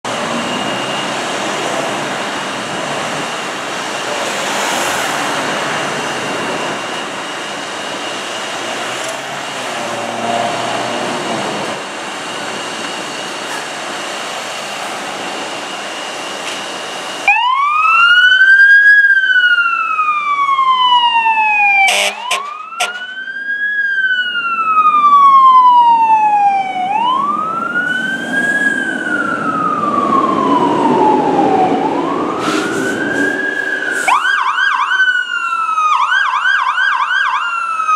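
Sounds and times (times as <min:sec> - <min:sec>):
fire engine siren wailing: 0:00.0 - 0:37.9
steady high-pitched tone: 0:00.1 - 0:17.5, 0:30.8 - 0:35.7
short horn blasts: 0:21.9 - 0:23.1
fire engine idling: 0:31.5 - 0:37.8.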